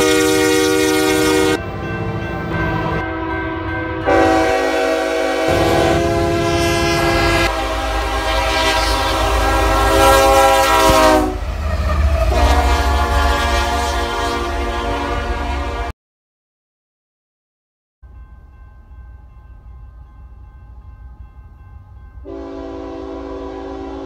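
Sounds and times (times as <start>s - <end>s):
locomotive air horns: 0.0s - 1.7s, 2.8s - 15.9s, 22.2s - 24.0s
low rumble of passing trains: 0.0s - 15.9s, 18.0s - 24.0s.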